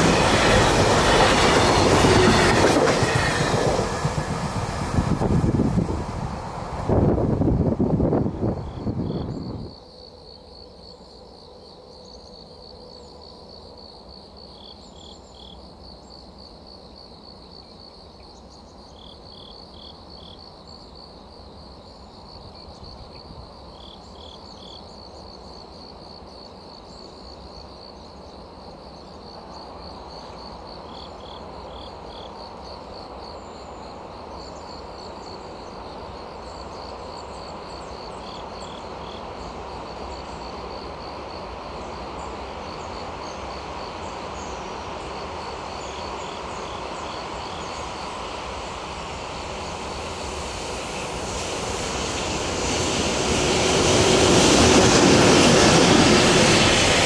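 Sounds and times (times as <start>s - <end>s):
crickets chirping: 0.0s - 57.0s
low train rumble: 0.0s - 57.0s
insect three-note calls: 8.6s - 50.0s.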